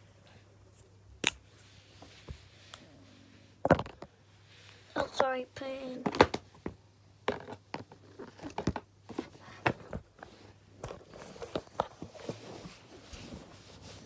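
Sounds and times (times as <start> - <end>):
clothing brushing: 11.1 - 14.0.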